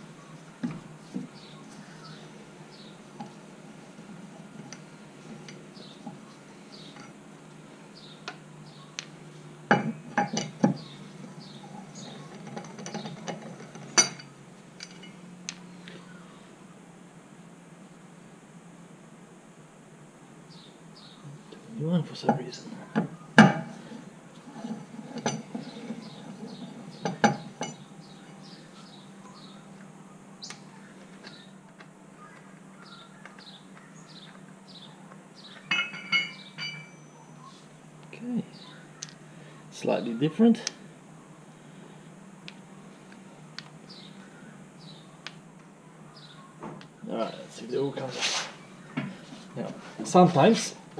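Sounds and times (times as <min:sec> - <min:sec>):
wheel brace clinking on wheel nuts: 0:09.7 - 0:15.2, 0:22.3 - 0:27.9, 0:35.5 - 0:37.2
small bird chirping: 0:25.6 - 0:37.8, 0:45.9 - 0:47.6.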